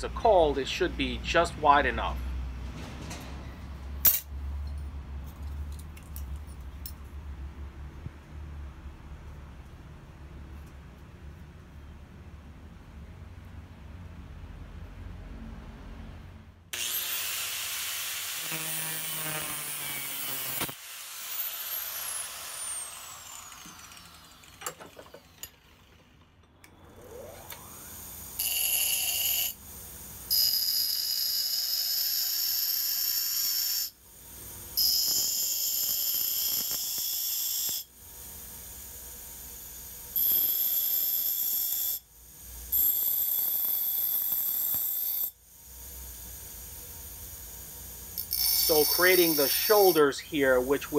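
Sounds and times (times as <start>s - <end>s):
bench grinder grinding metal: 16.8s - 26.2s, 27.0s - 29.6s, 34.8s - 37.9s, 48.2s - 50.9s
grinder motor running: 16.8s - 26.3s, 48.2s - 50.9s
grinder wheel whine: 16.8s - 45.3s, 45.9s - 50.9s.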